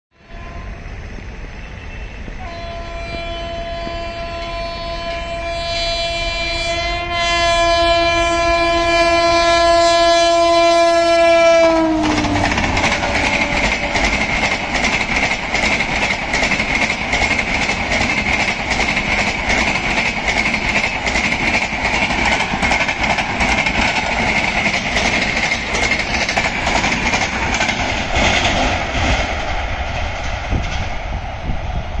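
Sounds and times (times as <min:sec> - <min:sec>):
locomotive horn blast: 0:00.1 - 0:00.9, 0:01.6 - 0:14.4
steady train rumble: 0:00.1 - 0:32.0
train wheels clattering over rail joints: 0:11.9 - 0:32.0.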